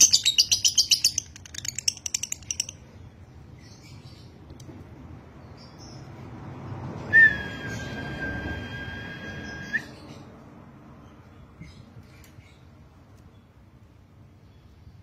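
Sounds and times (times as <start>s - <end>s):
bird long high-pitched note: 7.2s - 10.0s.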